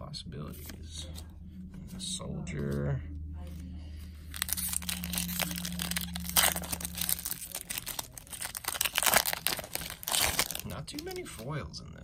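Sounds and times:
foil wrapper tearing: 4.3 - 11.3
foil wrapper crackling: 4.3 - 11.5.

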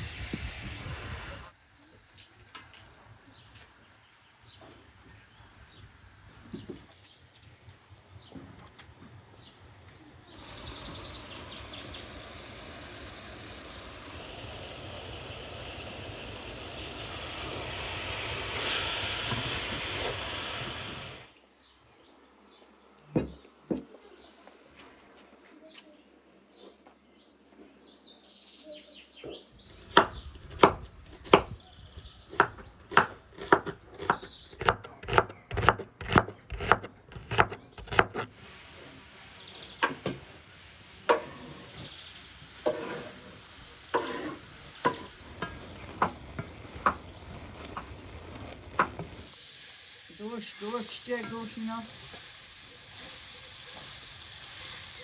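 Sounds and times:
steady hiss: 0.0 - 1.6, 9.6 - 25.4, 38.3 - 55.0
birds chirping: 1.6 - 15.8, 25.3 - 36.6, 43.7 - 49.2.

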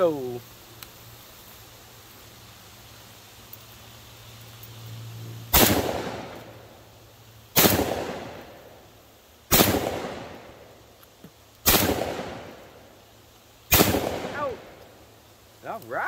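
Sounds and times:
shotgun shots echoing: 5.5 - 6.4, 7.6 - 8.4, 9.5 - 10.4, 11.6 - 12.6, 13.7 - 14.7.

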